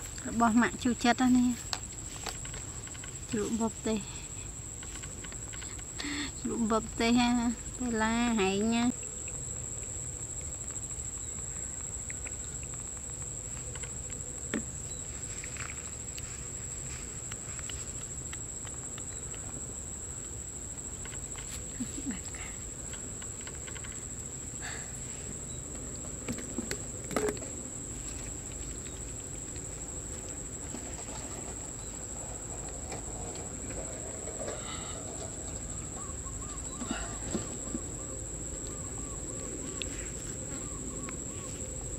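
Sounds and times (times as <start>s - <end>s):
insects trilling: 0.0s - 41.9s.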